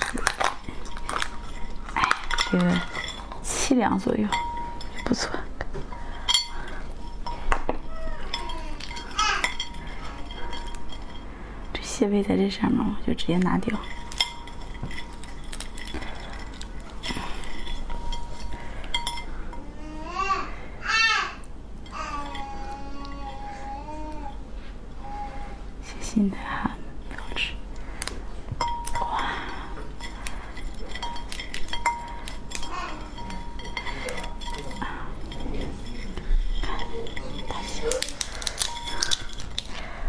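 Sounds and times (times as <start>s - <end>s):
clinks against ceramic plate: 0.0s - 11.8s, 13.3s - 19.6s, 28.5s - 39.8s
crab shell cracking: 37.9s - 39.8s.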